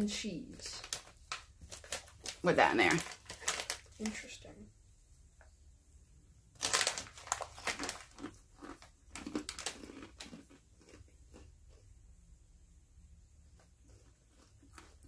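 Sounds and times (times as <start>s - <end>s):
crunchy snack chewing: 6.6s - 12.0s, 13.5s - 15.0s.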